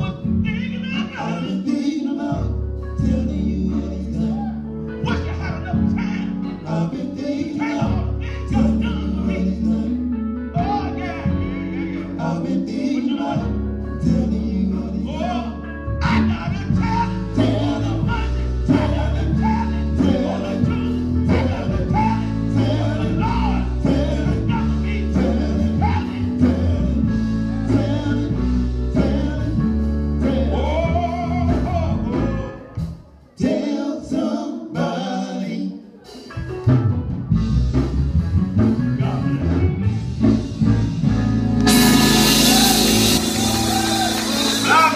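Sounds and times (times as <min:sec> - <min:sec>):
electric bass guitar: 0:00.0 - 0:01.6, 0:02.3 - 0:33.1, 0:36.1 - 0:44.9
man singing into a microphone: 0:00.0 - 0:32.8, 0:43.9 - 0:44.9
drum kit: 0:16.6 - 0:33.0, 0:36.1 - 0:44.9.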